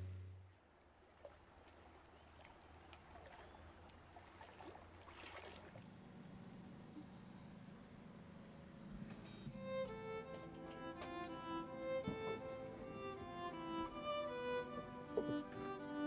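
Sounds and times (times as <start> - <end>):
faint ambient hiss: 5.9 - 16.0.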